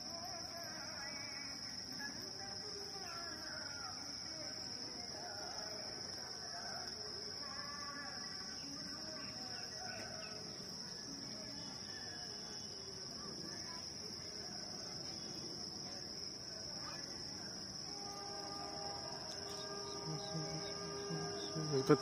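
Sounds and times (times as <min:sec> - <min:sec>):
faint ambient noise: 0:00.0 - 0:22.0
high-pitched insect drone: 0:16.8 - 0:22.0.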